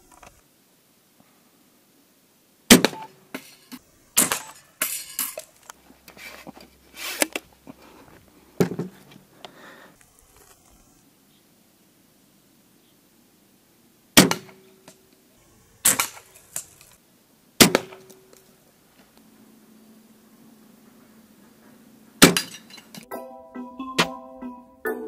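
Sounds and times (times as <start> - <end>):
short scraping sounds: 3.4 - 9.2.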